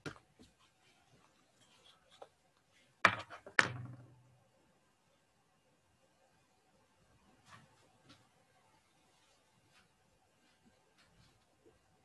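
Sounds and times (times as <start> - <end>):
faint clicks and rustles: 0.0 - 3.0.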